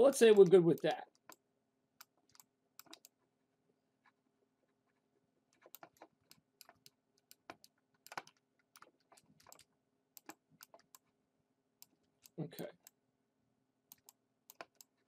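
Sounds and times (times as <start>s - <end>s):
computer keyboard and mouse clicking: 0.0s - 1.4s, 2.0s - 3.2s, 5.6s - 11.1s, 13.9s - 15.0s.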